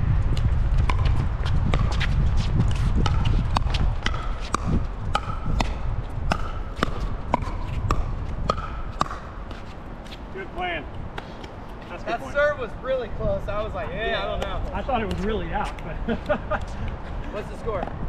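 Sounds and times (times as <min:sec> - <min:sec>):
wind rumble on microphone: 0:00.0 - 0:18.0
ball bouncing on court: 0:00.3 - 0:09.3.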